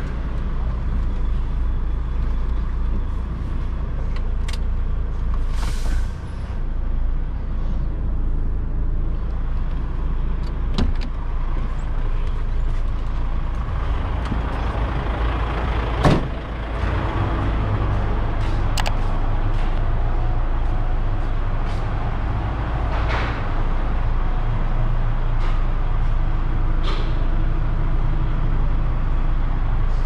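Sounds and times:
diesel engine running: 0.0s - 30.0s
air brakes hissing: 5.4s - 6.6s.

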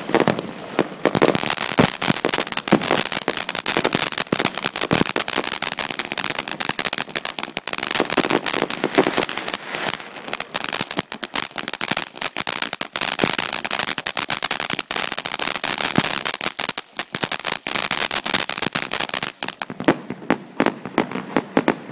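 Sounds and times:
firework fountain crackling: 0.0s - 21.9s.

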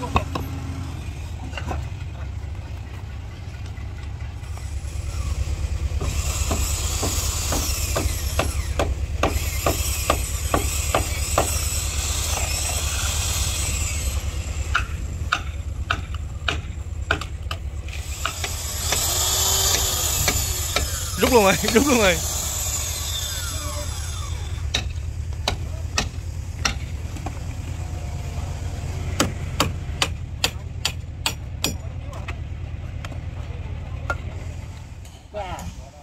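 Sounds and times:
hammer blows on timber: 18.2s - 22.3s.

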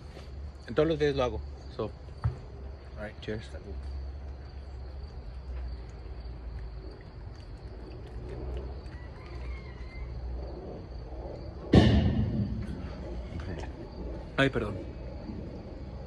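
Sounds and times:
low background rumble: 0.0s - 16.0s
sudden loud sound: 11.7s - 12.9s.

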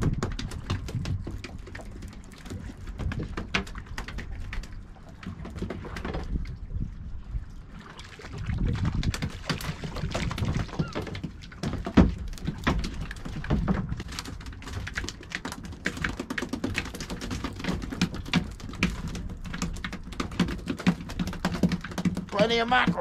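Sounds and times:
wind rumble: 0.0s - 1.4s, 5.8s - 10.9s.

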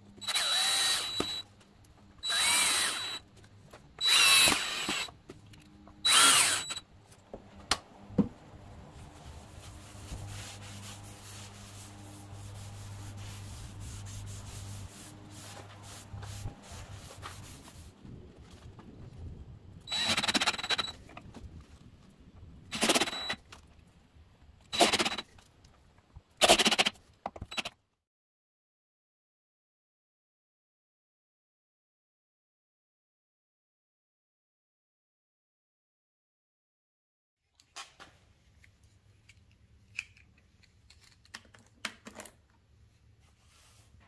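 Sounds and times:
cordless drill driving screws: 0.2s - 1.4s, 2.2s - 3.2s, 4.0s - 5.2s, 6.0s - 6.8s, 19.9s - 20.9s, 22.7s - 23.4s, 24.8s - 25.3s
hand-sanding wood: 9.1s - 17.9s.

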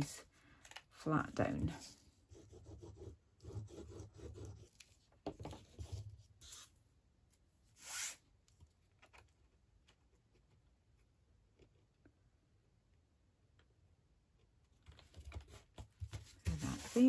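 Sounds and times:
paper sliding on mat: 7.8s - 8.2s, 16.2s - 17.0s.

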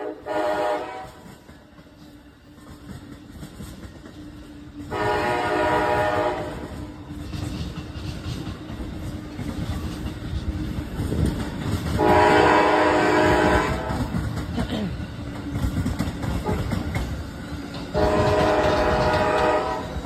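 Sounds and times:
train horn blasts: 0.0s - 1.4s, 4.8s - 6.8s, 11.9s - 14.2s, 17.9s - 20.0s
train wheels rumbling on rails: 0.0s - 20.0s.

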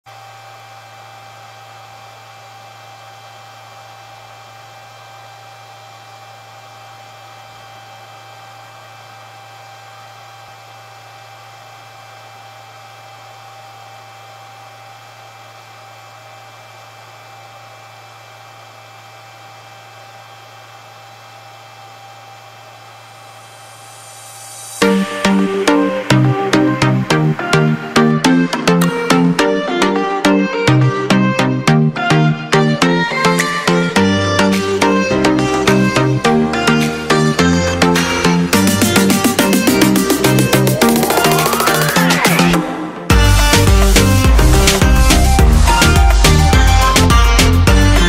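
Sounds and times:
induction heater humming and whining: 0.1s - 48.0s
fan-like hiss: 23.2s - 26.7s.

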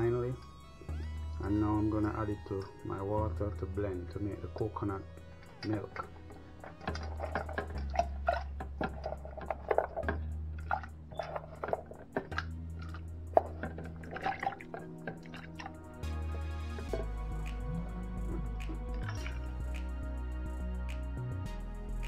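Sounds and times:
coconut pieces plopping into water: 13.4s - 15.8s.

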